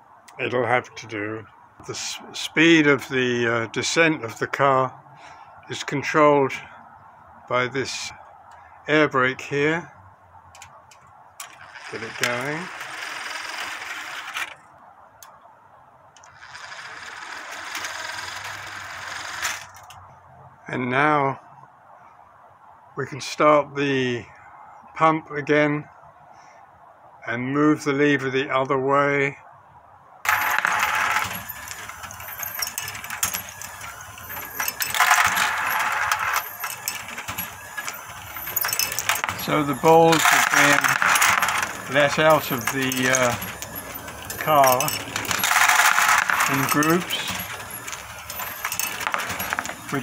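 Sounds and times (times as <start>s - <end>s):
gear train and fan whirring: 10.5s - 15.4s, 16.2s - 20.0s, 30.3s - 50.0s
sharp metal clicks: 30.3s - 50.0s
steel balls clattering in metal: 30.3s - 50.0s.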